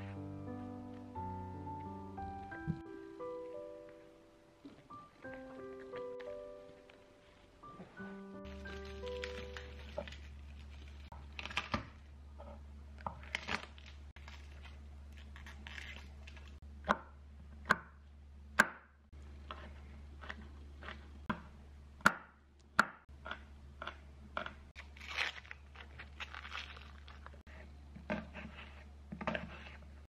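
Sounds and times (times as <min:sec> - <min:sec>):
garlic skins crackling: 0:08.4 - 0:12.1, 0:13.0 - 0:16.6, 0:23.8 - 0:27.5.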